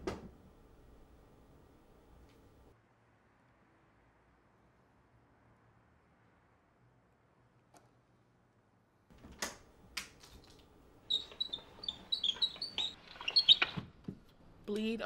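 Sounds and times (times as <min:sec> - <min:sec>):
window frame squeaks and taps: 0:11.1 - 0:13.9.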